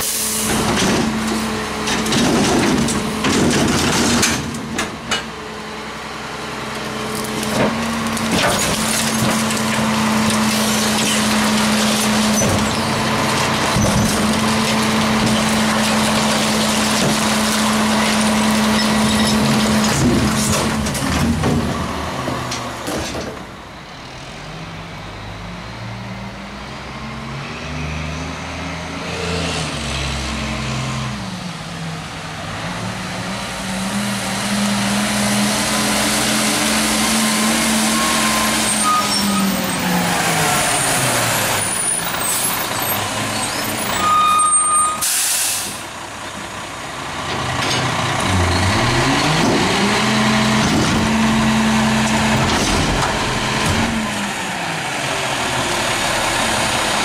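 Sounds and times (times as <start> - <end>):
air-brake hiss: 45.0 - 45.9
garbage truck engine running: 45.8 - 57.0.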